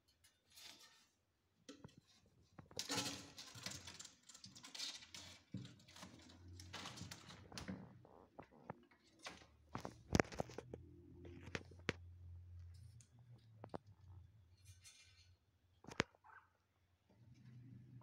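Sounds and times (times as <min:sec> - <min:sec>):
kittens scratching and pawing: 0:01.9 - 0:12.0.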